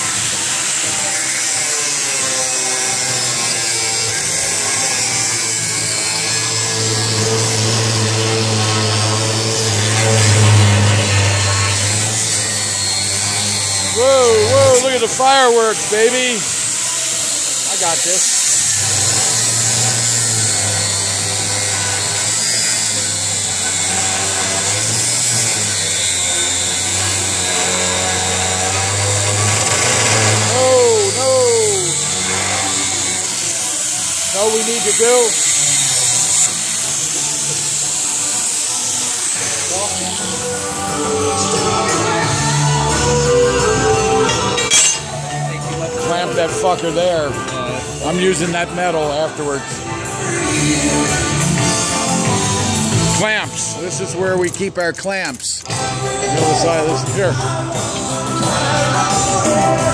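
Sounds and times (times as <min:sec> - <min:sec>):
angle grinder cutting steel: 0:00.0 - 0:59.9.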